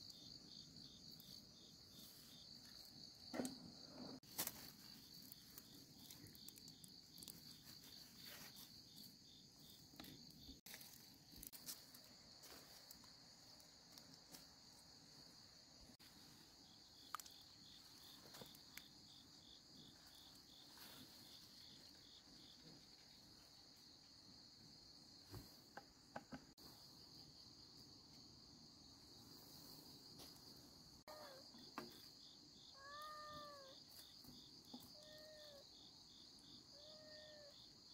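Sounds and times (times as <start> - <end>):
insect chirring: 0.0 - 15.8, 16.6 - 23.6, 31.0 - 37.9.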